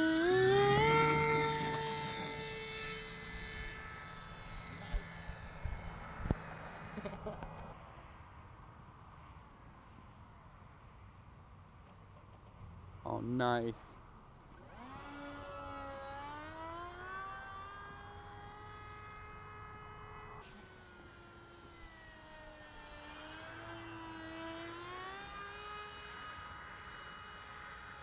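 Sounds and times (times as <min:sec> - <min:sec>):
model plane motor whine: 0:00.0 - 0:07.6, 0:14.6 - 0:28.0.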